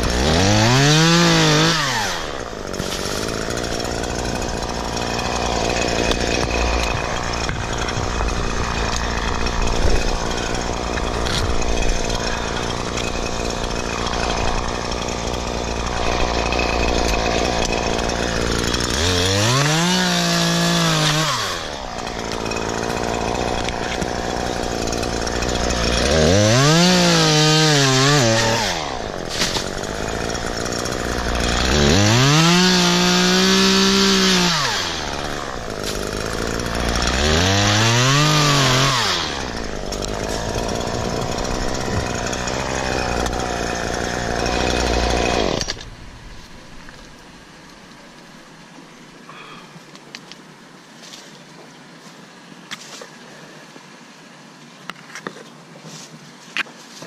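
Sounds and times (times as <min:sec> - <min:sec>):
chainsaw idling and revving: 0:00.0 - 0:46.2.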